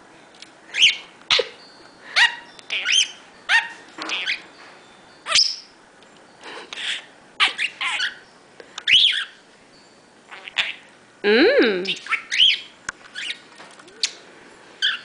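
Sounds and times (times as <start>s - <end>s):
budgerigar chirping and whistling: 0.7s - 1.5s, 2.2s - 4.5s, 5.2s - 5.8s, 6.8s - 9.4s, 10.3s - 10.9s, 11.9s - 14.2s, 14.8s - 15.0s.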